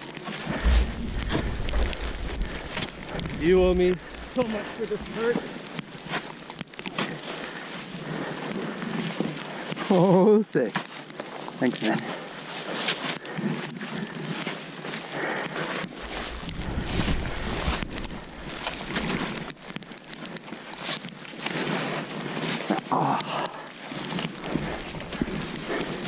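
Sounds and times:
wind rumbling on microphone: 0.0 - 6.0, 15.9 - 20.1
snowboard swishing through snow: 0.3 - 6.4, 14.5 - 19.5.

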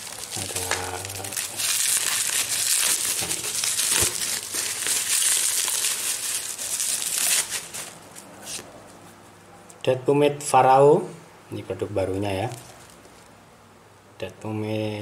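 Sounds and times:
bubble wrap crinkling: 0.0 - 9.0, 12.1 - 13.3.

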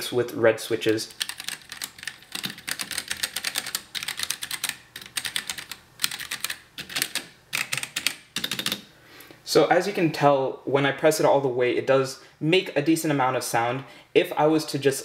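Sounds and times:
mechanical keyboard typing: 0.8 - 8.9.

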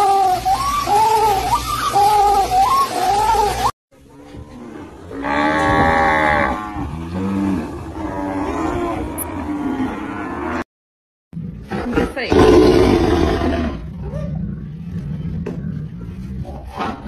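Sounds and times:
wavering high call: 0.0 - 3.7
water buffalo lowing: 0.0 - 10.6.

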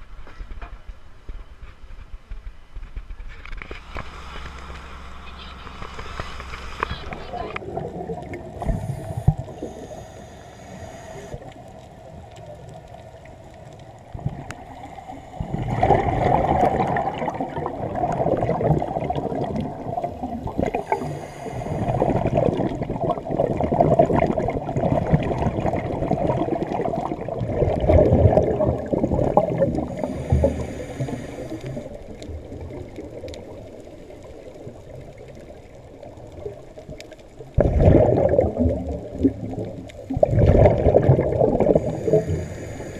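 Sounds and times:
exhaled bubbles gurgling: 6.4 - 42.9
muffled regulator inhaling hiss: 8.6 - 11.4, 20.5 - 22.6, 29.8 - 32.0, 41.6 - 42.9.

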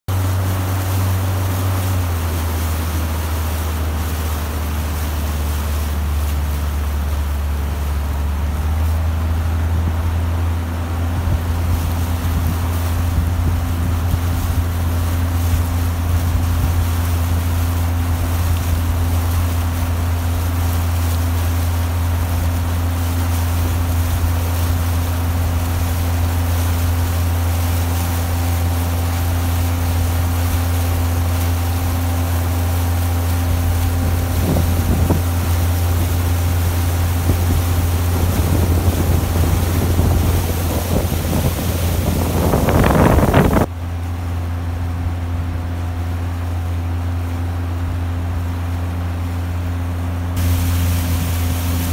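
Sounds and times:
outboard boat motor running: 0.0 - 51.9
water wash: 0.0 - 51.9
wind on microphone: 10.9 - 20.0, 23.4 - 43.7, 50.4 - 51.9.

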